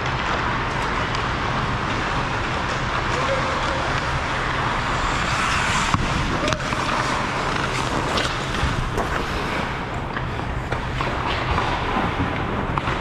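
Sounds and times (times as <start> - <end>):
hockey sticks and puck clacking: 0.0 - 13.0
skates hissing on ice: 2.0 - 10.5.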